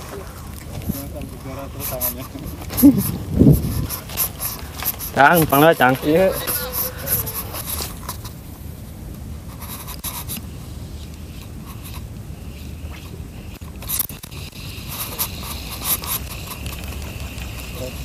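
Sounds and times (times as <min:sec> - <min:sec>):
fishing reel scraping whir: 0:03.8 - 0:07.9.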